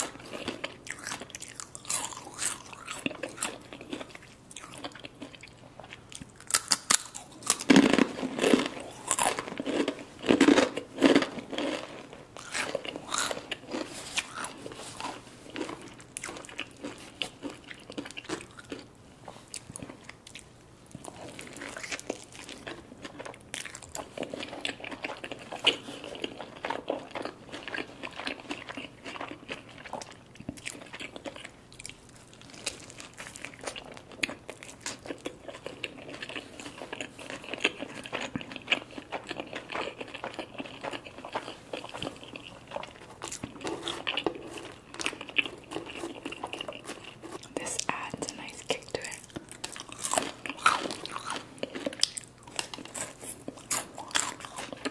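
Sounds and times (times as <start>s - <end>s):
chips crunching: 0.0s - 18.9s, 19.6s - 54.9s
soft chewing: 0.0s - 54.9s.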